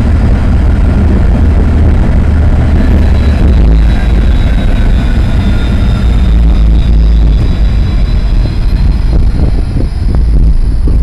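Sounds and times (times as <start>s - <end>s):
faint tram whine: 0.0s - 11.0s
tram rumbling on track: 0.0s - 11.0s.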